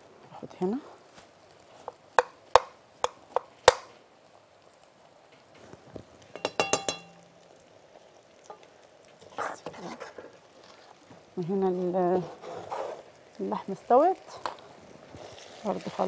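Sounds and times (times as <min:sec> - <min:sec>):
metal spoon knocking on bowl: 0:06.4 - 0:07.3
utensils clinking on cookware: 0:06.4 - 0:07.3.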